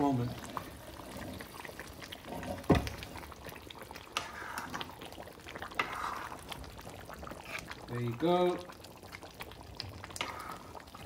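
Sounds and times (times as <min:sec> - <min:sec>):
curry bubbling in a pan: 0:00.0 - 0:11.0
metal ladle scraping a pan: 0:04.0 - 0:05.0, 0:05.7 - 0:06.4, 0:07.3 - 0:07.8.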